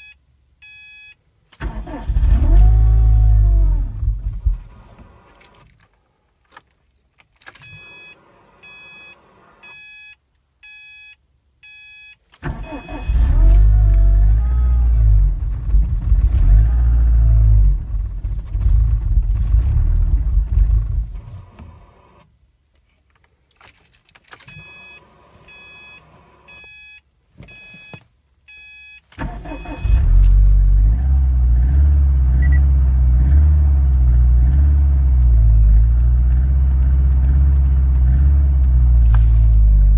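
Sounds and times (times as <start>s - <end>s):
car engine cranking and idling: 1.5s - 6.5s, 12.4s - 22.4s, 29.1s - 39.9s.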